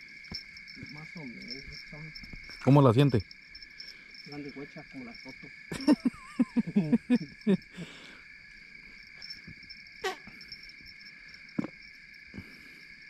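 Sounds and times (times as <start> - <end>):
crickets chirping: 0.0 - 13.0
voices: 0.8 - 8.1.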